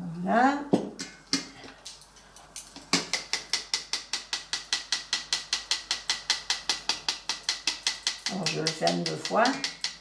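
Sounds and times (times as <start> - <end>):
rapid tapping on a sieve: 2.7 - 10.0.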